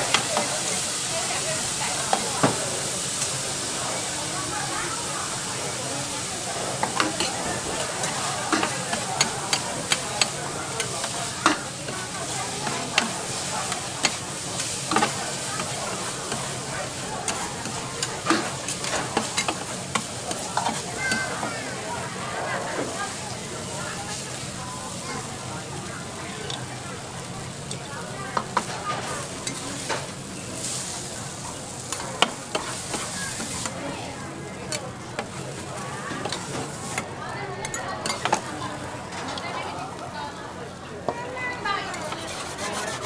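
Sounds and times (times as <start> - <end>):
noodles sizzling on griddle: 0.0 - 43.0
metal spatulas clacking on griddle: 6.8 - 16.6, 17.2 - 21.5, 28.4 - 30.1, 31.9 - 33.8, 36.1 - 38.5.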